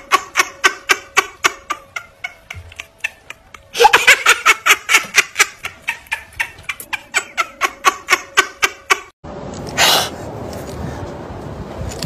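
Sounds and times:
person laughing: 0.0s - 9.1s.

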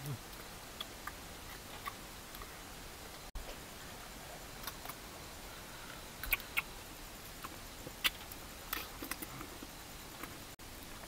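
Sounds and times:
steady low hiss: 0.0s - 11.0s
man chewing food: 5.8s - 6.7s, 7.3s - 10.4s.

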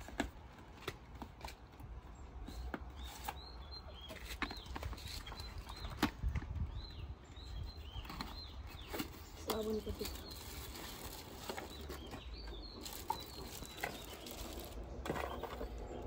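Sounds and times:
small birds chirping: 0.0s - 16.0s
cardboard packaging rustling and clicking: 8.0s - 16.0s.

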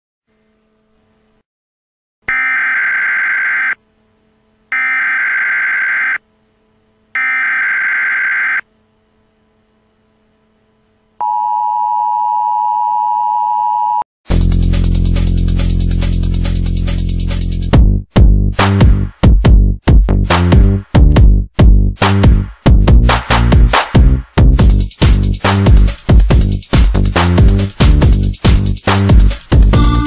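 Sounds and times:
steady telephone tone: 2.3s - 3.8s, 7.2s - 8.6s, 11.2s - 14.1s
telephone ringing: 11.2s - 14.0s
loud electronic music: 14.3s - 21.3s, 22.0s - 30.0s.

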